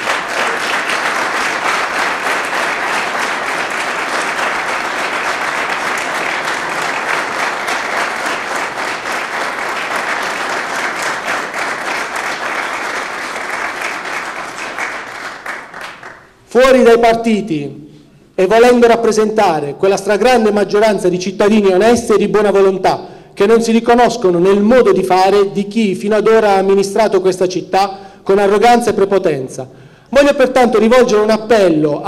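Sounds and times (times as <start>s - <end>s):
audience applauding: 0.0s - 16.3s.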